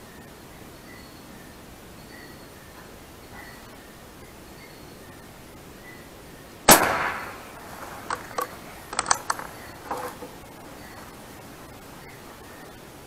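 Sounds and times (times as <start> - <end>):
air rifle shot: 6.7 - 10.0
rifle bolt metallic clicks: 6.7 - 11.2.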